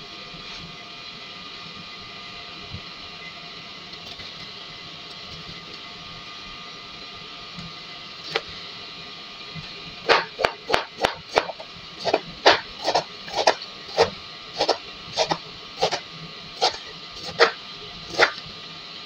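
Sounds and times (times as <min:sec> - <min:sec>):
knife chopping on a cutting board: 0:10.1 - 0:16.0, 0:16.6 - 0:18.4.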